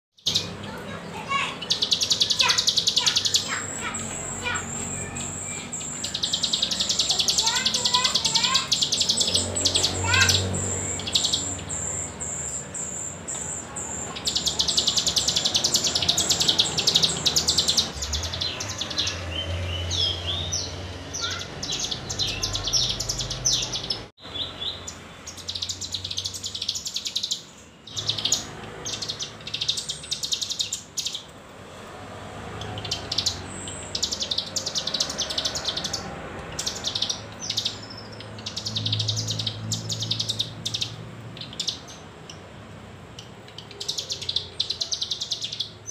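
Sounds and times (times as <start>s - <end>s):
bird singing high trills: 0.2s - 31.3s, 32.6s - 42.0s.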